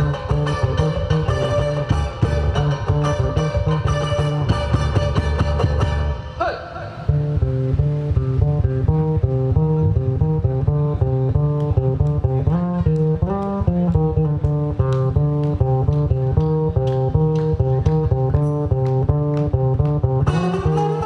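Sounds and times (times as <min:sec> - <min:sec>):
electric bass guitar line: 0:00.0 - 0:06.4, 0:07.0 - 0:21.0
plucked guitar notes: 0:00.0 - 0:21.0
light percussion taps: 0:11.3 - 0:20.4.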